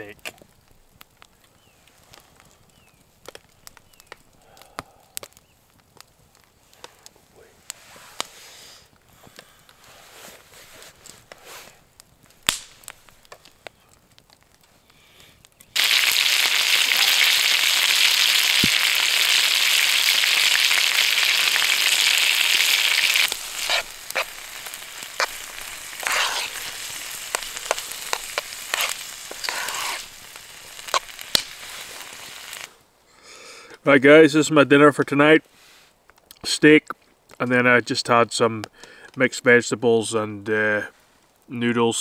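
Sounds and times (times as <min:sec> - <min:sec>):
steak sizzling in frying pan: 0:15.8 - 0:32.7
spoon clicking and scraping pan: 0:23.6 - 0:26.7, 0:27.3 - 0:30.0.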